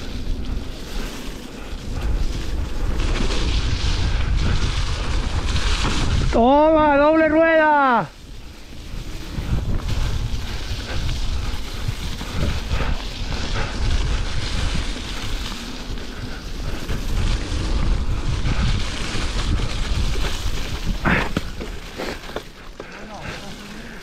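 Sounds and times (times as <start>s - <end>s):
wind buffeting microphone: 0.0s - 7.1s, 8.0s - 22.0s
bike tyres rumbling on dirt trail: 0.0s - 24.0s
bike knocks and rattles: 19.0s - 23.2s.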